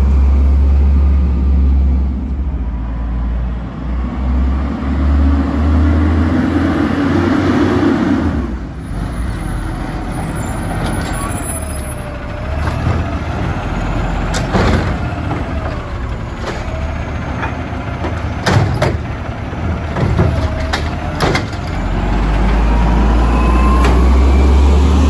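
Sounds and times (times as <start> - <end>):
garbage truck engine running: 8.6 - 25.0.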